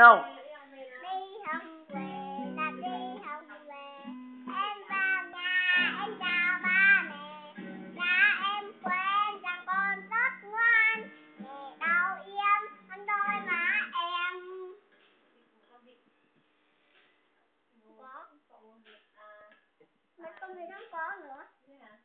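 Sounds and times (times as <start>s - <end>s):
girl singing: 0.2s - 14.9s
acoustic guitar strummed: 1.4s - 14.1s.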